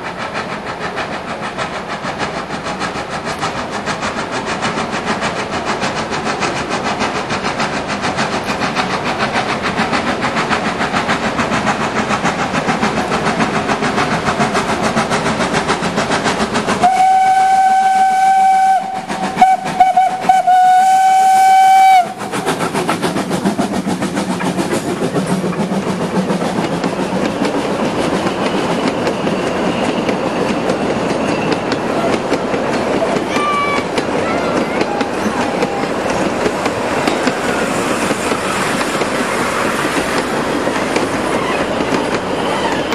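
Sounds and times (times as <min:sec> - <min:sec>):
steam locomotive exhaust beats: 0:00.0 - 0:42.9
wheels clicking over rail joints: 0:00.0 - 0:42.9
steam whistle: 0:16.8 - 0:22.3.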